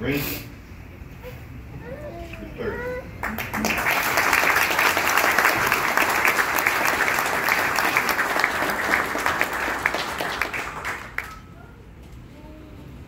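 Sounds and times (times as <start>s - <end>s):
audience applauding: 3.2s - 11.6s.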